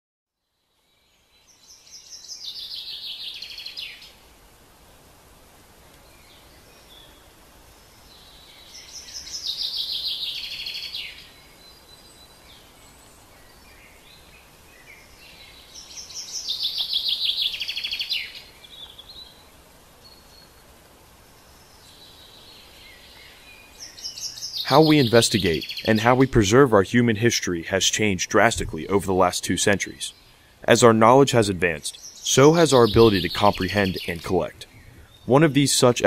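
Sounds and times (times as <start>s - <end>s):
faint outdoor hiss: 0.3s - 36.0s
faint bird chirps: 0.4s - 4.2s, 5.9s - 26.5s, 29.8s - 36.0s
birdsong of rapid high notes: 24.3s - 36.0s.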